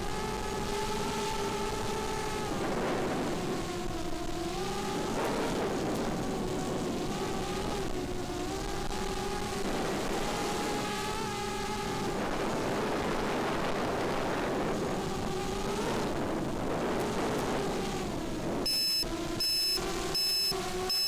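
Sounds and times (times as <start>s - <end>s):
drone motors whining: 0.0s - 21.0s
high electronic beep: 18.7s - 21.0s.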